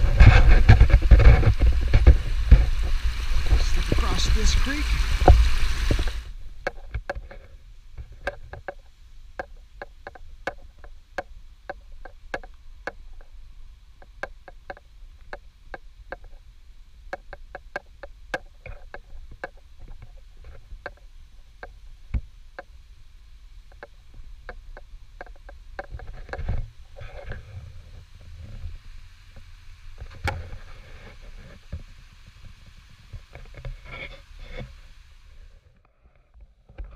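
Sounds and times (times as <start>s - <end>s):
creek water rushing: 0.0s - 8.3s.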